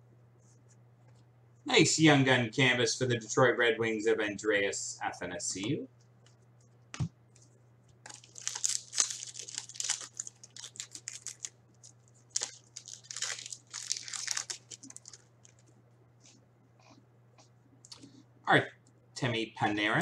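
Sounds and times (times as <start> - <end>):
foil wrapper tearing and crinkling: 8.0 - 15.7.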